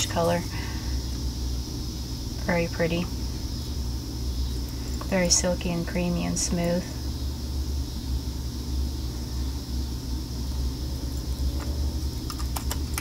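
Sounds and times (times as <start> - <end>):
even hiss: 0.0 - 13.0
steady low rumble: 0.0 - 13.0.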